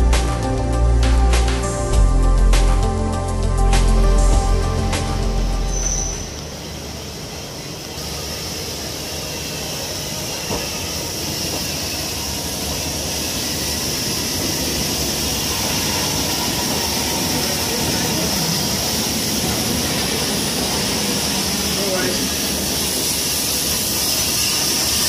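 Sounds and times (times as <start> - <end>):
low rumble: 0.0 - 6.4
steam locomotive hissing: 4.1 - 25.0.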